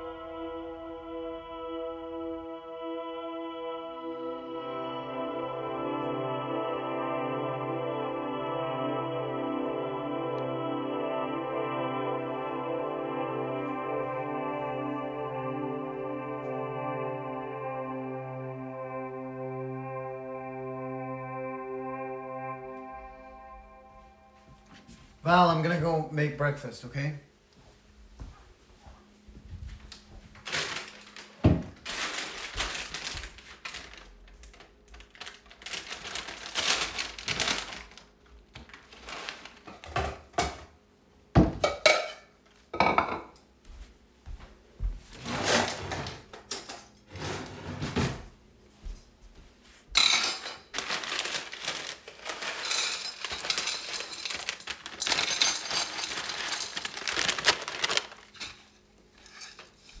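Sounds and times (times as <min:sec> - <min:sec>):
rustling: 0:30.4 - 0:39.7, 0:50.7 - 1:00.0
pots and pans clattering: 0:41.4 - 0:43.3, 0:50.0 - 0:50.7, 0:52.2 - 0:56.8.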